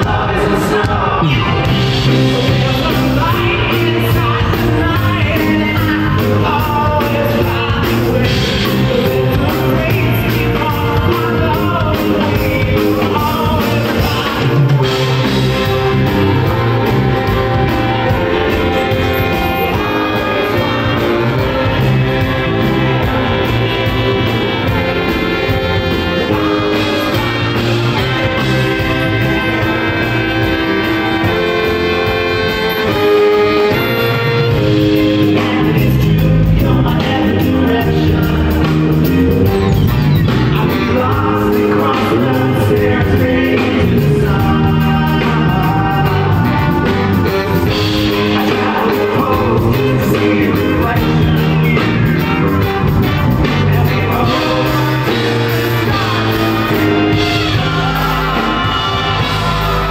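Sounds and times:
live band playing loudly: 0.0 - 59.9
trombone: 0.0 - 59.9
baritone saxophone: 1.3 - 59.9.

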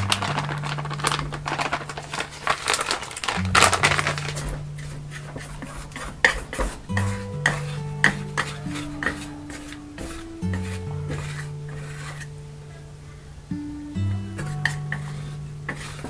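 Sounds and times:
paper bag rustling: 0.0 - 7.2
background music with bass: 6.9 - 16.0.

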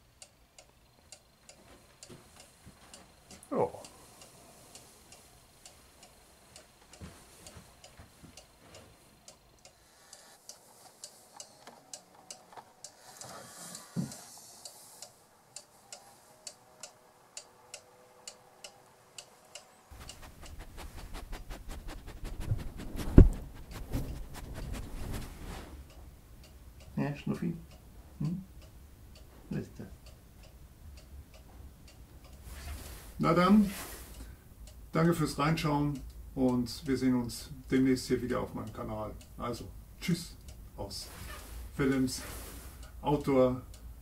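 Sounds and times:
cuckoo clock ticking: 0.0 - 21.3, 25.9 - 44.0
dog nose bumping microphone: 19.9 - 25.4.

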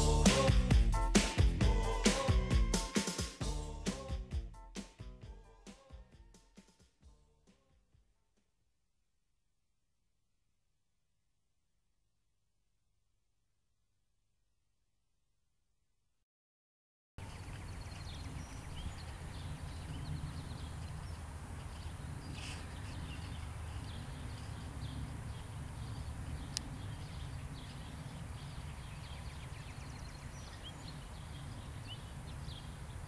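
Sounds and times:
small birds chirping: 17.2 - 33.0.

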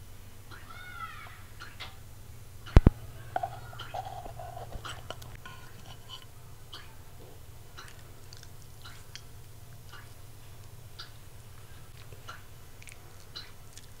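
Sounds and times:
dog biting and mouth sounds: 3.4 - 14.0.

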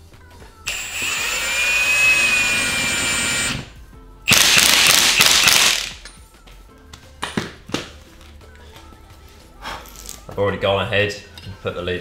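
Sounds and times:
impact wrench whining: 0.7 - 3.7, 4.3 - 6.0.

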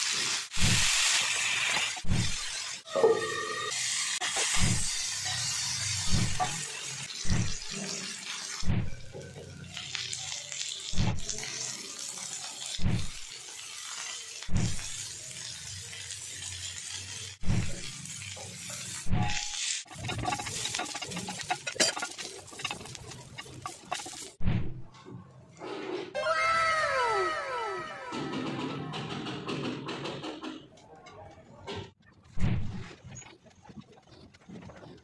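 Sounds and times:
chicken sizzling in hot oil: 0.0 - 24.4.

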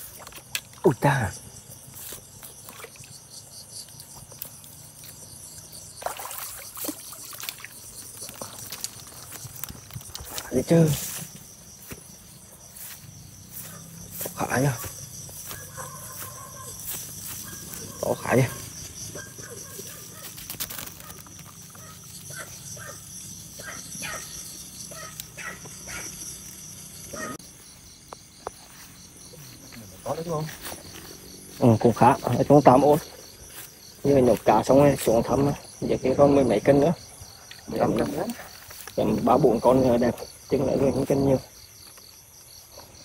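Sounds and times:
crickets chirping: 0.0 - 43.0
fish splashing in water: 5.9 - 10.4.

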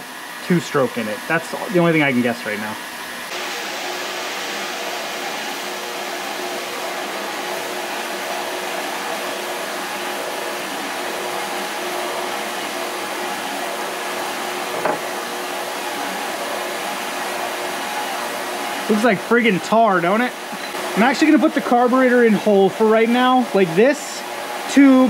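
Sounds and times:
electric appliance whirring: 0.0 - 25.0.

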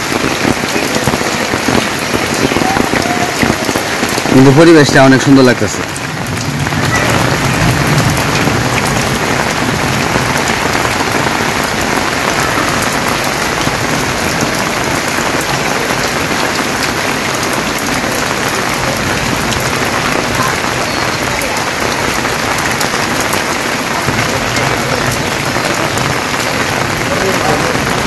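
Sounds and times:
rain on metal roofs and leaves: 0.0 - 28.0.

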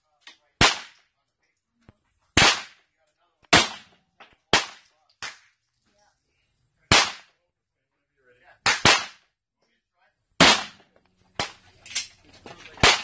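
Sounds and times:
gunshots with echo: 0.6 - 1.0, 2.4 - 2.8, 3.5 - 5.4, 6.9 - 7.3, 8.6 - 9.2, 10.4 - 11.6, 12.8 - 13.0.

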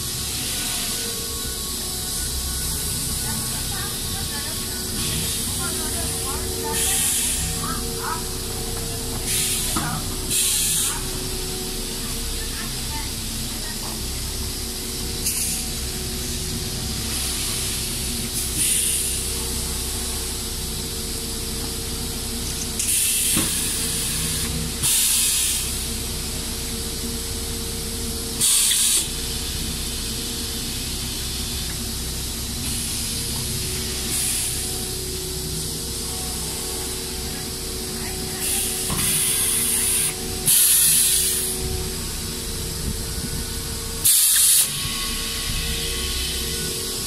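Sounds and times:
steady machine hum: 0.0 - 47.0
pneumatic compressed air hisses: 6.7 - 7.6, 9.3 - 11.1, 15.2 - 15.7, 17.2 - 19.3, 22.7 - 25.9, 28.4 - 29.3, 32.6 - 34.8, 38.4 - 41.7, 44.0 - 46.4.

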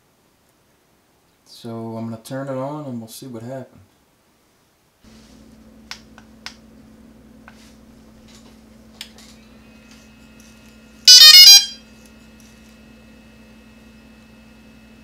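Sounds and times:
electronic start-up beeps: 11.1 - 11.8.

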